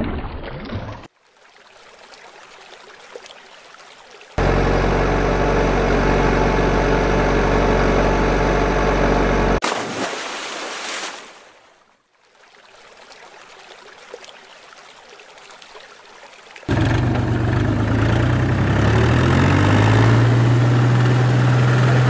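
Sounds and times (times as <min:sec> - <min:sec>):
water splashing: 0:00.0 - 0:04.4, 0:09.6 - 0:16.8
truck engine running: 0:04.4 - 0:09.6, 0:16.7 - 0:22.0.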